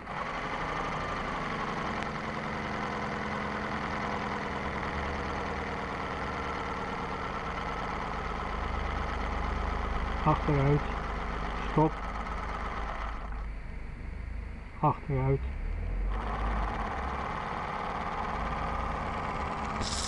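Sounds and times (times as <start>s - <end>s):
model steam engine beating: 16.1s - 20.0s
continuous steam hiss: 19.8s - 20.0s.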